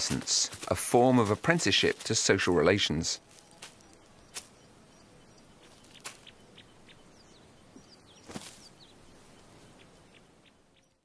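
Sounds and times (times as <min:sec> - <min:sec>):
low outdoor hiss: 0:00.0 - 0:11.0
high bird chirps: 0:03.2 - 0:11.0.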